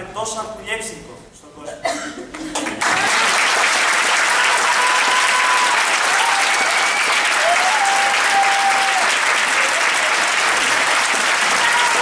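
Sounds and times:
audience applauding: 2.5 - 12.0.

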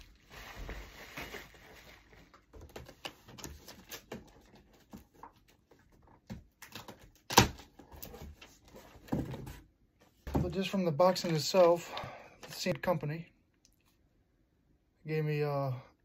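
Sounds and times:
bubble wrap crinkling: 0.0 - 4.8.

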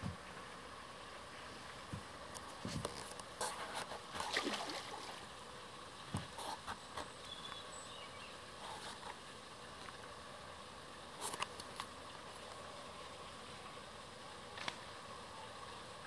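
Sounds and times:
water splashing and sloshing: 1.7 - 5.4.

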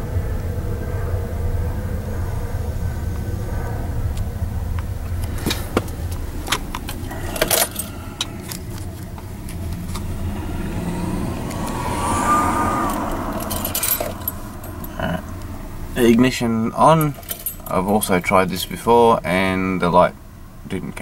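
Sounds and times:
car keys jangling: 5.3 - 12.2, 12.8 - 15.5, 16.9 - 18.1.

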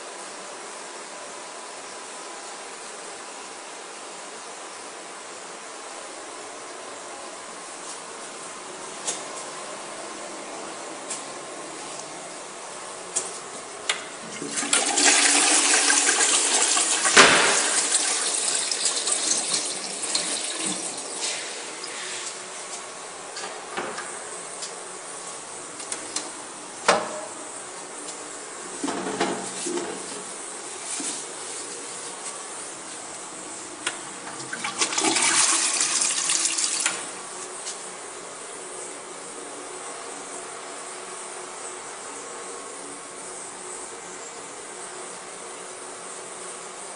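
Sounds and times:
toilet flushing: 14.1 - 22.4, 34.0 - 37.5.

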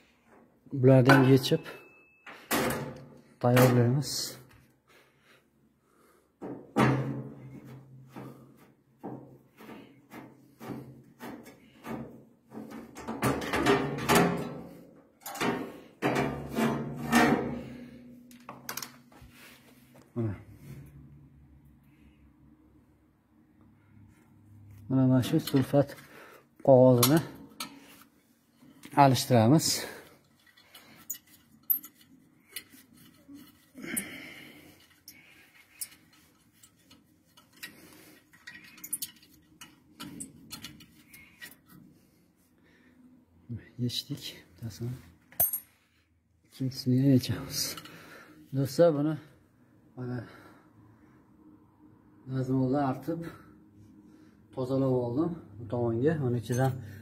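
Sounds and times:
metal panel clattering and scraping: 9.7 - 14.6, 15.3 - 17.8.

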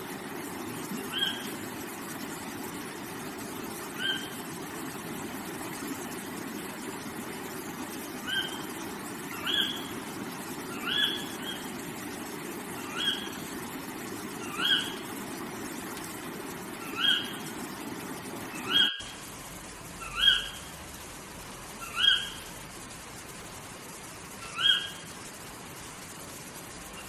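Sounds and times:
stream running over stones: 0.0 - 27.0
bird rising call: 0.9 - 1.6, 4.0 - 4.3, 8.2 - 8.7, 9.3 - 9.9, 10.7 - 11.7, 14.4 - 15.0, 16.8 - 17.4.

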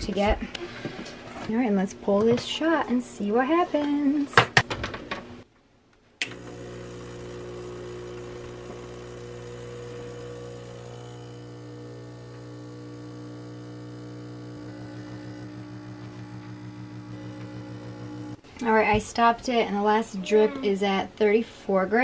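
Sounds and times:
espresso machine pump humming: 6.2 - 18.4.

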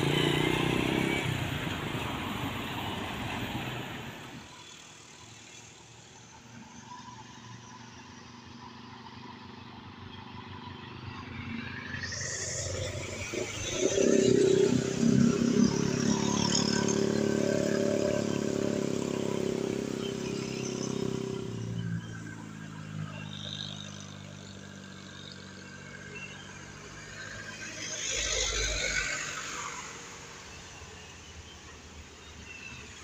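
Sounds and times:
diesel bus engine droning: 0.0 - 4.5
bus passing close: 0.0 - 5.2.

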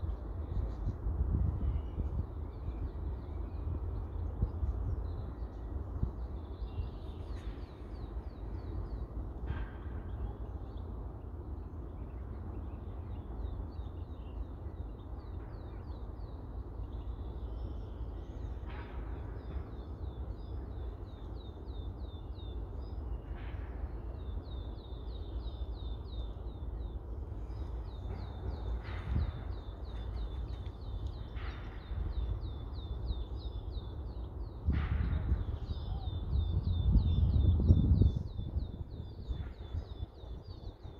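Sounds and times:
wind rumbling on microphone: 0.0 - 11.8, 26.8 - 40.9
small birds chirping: 10.0 - 40.9.

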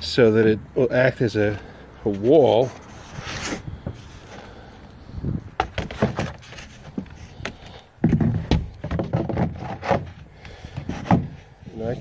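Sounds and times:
thumps: 5.4 - 11.4.

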